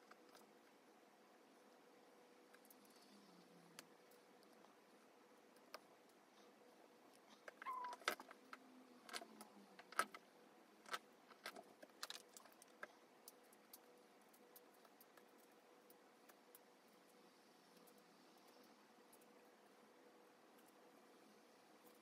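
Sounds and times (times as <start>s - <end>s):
faint squeaky tone: 7.3s - 8.2s.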